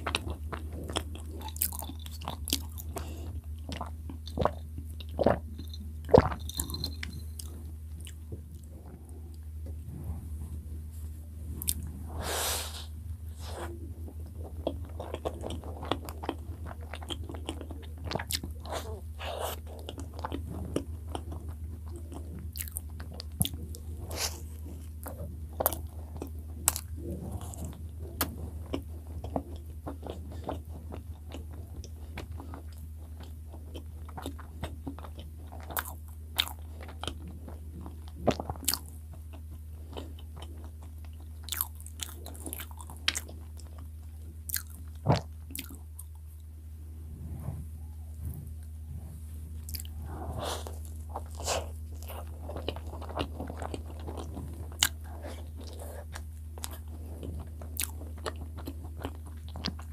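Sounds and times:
chewing with mouth clicks: 0.0s - 9.8s, 14.0s - 46.2s, 49.6s - 59.9s
low hum: 4.9s - 16.6s, 44.2s - 57.5s.

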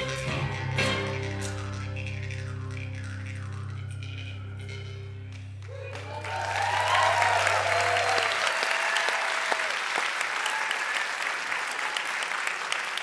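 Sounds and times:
audience clapping: 5.3s - 13.0s
audience cheering: 5.6s - 13.0s.

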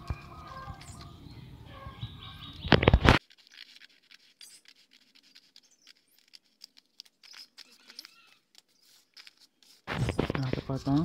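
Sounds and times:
birds chirping: 0.0s - 3.2s, 4.4s - 11.0s
scissors snipping paper: 3.1s - 11.0s.

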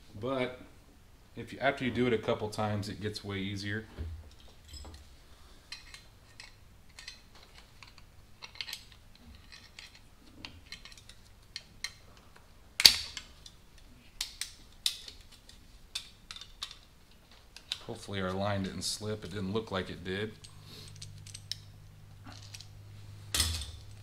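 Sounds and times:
loud sharp metal clank: 23.3s - 24.0s.

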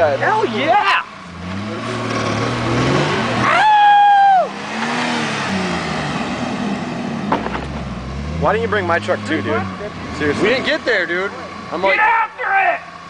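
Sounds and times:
truck engine revving: 0.0s - 12.0s
person whooping: 3.4s - 4.6s.

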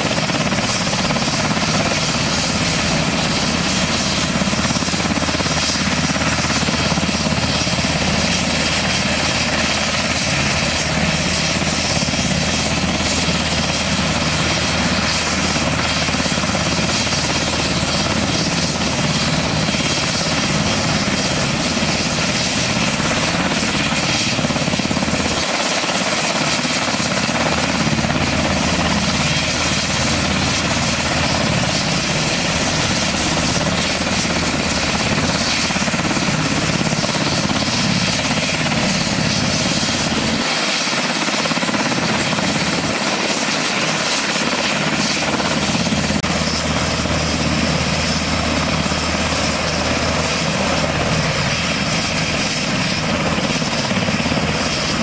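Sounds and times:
helicopter rotor and turbine noise: 0.0s - 55.0s.

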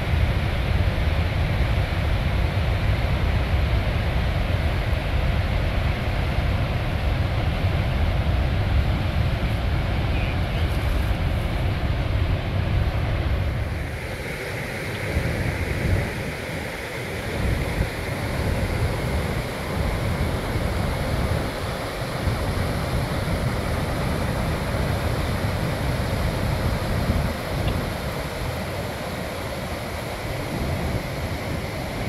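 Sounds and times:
rushing river rapids and falls: 0.1s - 32.0s
wind buffeting microphone: 15.0s - 29.0s.

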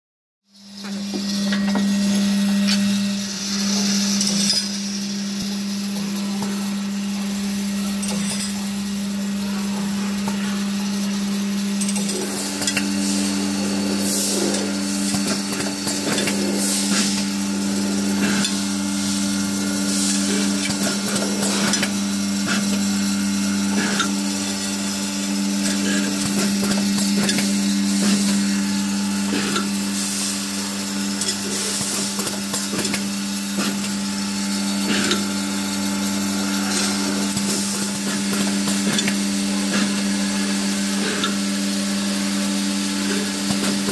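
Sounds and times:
machine humming: 0.5s - 43.9s
machine parts clicking and rattling: 11.8s - 12.9s, 31.1s - 34.0s.

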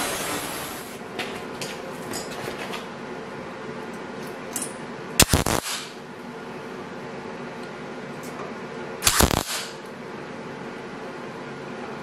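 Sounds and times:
tack weld crackle: 5.2s - 5.8s, 9.1s - 9.6s.

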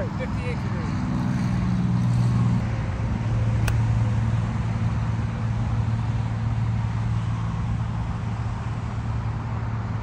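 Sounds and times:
low engine hum: 0.0s - 10.0s
golf club striking ball: 3.6s - 4.0s.

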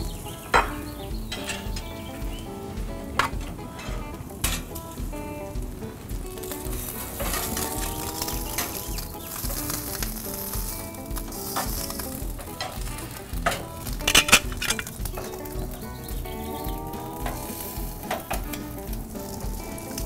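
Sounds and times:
steak sizzling on a grate: 5.7s - 20.0s.

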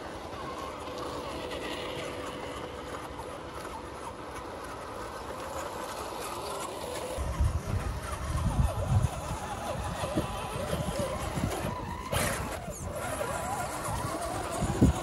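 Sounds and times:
electric motor and gear whine: 0.0s - 15.0s
tyres grinding on rock: 5.5s - 15.0s.

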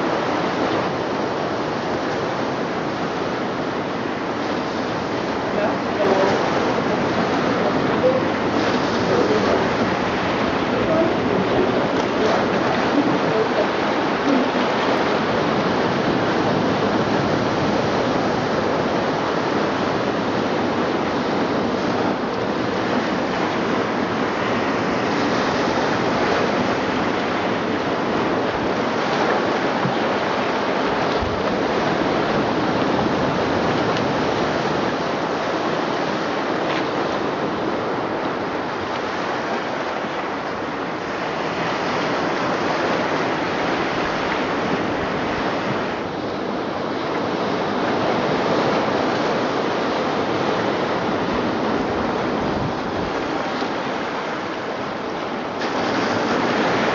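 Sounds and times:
ocean waves through loudspeakers: 0.0s - 56.9s.

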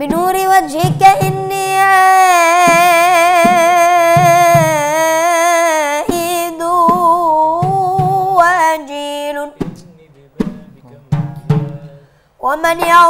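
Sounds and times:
frame drum strikes: 0.1s - 8.9s, 9.5s - 12.1s
man singing melismatic note: 9.1s - 12.1s.

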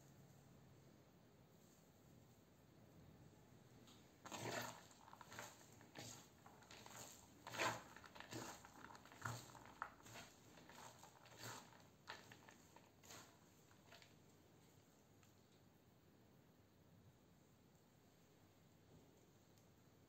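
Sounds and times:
vegetables rustling in bowl: 4.2s - 14.3s.

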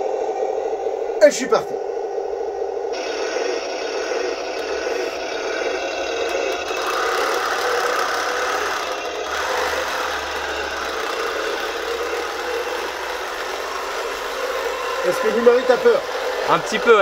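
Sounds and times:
simulated tank engine sound: 0.0s - 17.0s
toy tank tracks rattling: 6.2s - 17.0s.

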